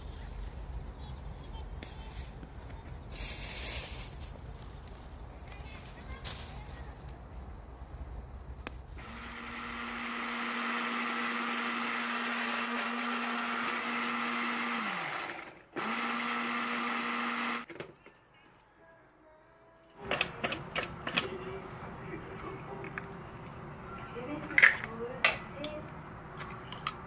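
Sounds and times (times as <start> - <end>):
electric blender motor: 9.0 - 17.7.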